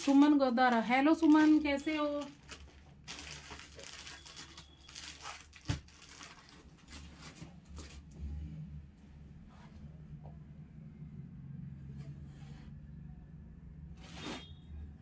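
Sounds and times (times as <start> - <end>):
cloth rustling and crinkling: 0.0 - 8.1.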